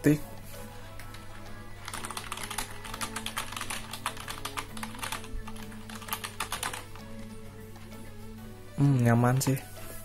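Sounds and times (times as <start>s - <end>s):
fast keyboard typing: 1.8s - 8.0s.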